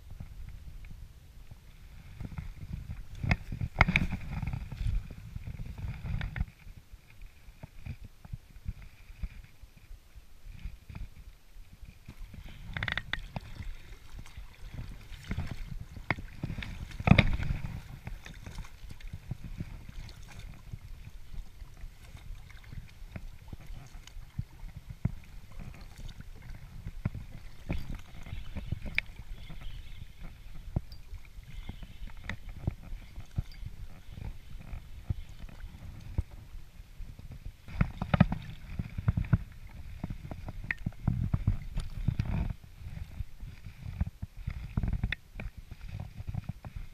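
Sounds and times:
water lapping against boat: 1.5s - 9.6s, 10.5s - 46.9s.

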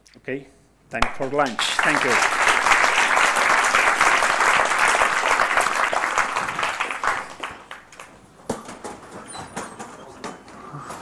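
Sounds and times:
audience applauding: 1.0s - 8.2s.

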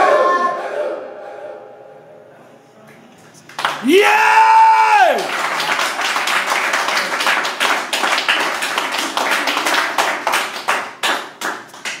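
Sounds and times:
audience clapping: 3.5s - 12.0s.

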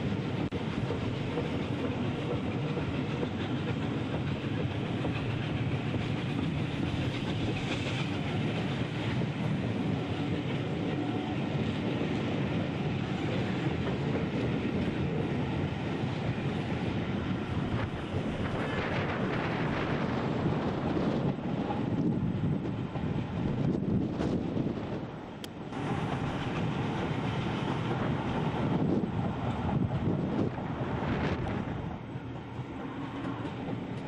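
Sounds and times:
train wheels on track: 0.0s - 34.0s.

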